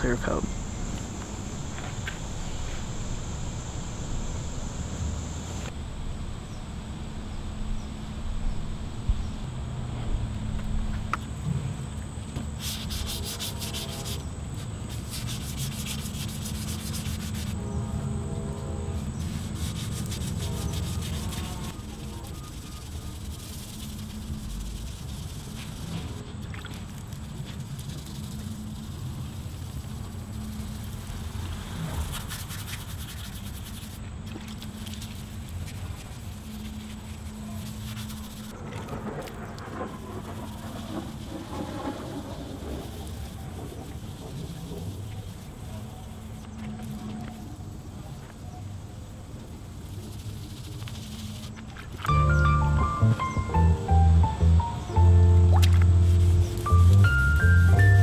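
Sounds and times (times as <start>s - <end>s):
sandpaper wet sanding: 12.6s - 17.6s, 19.0s - 26.2s, 27.0s - 38.5s, 49.8s - 51.6s, 55.9s - 58.0s.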